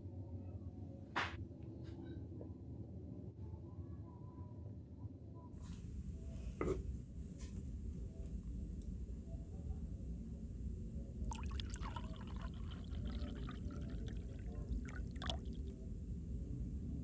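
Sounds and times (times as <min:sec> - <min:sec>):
sauce pouring and splashing: 0:11.3 - 0:15.6.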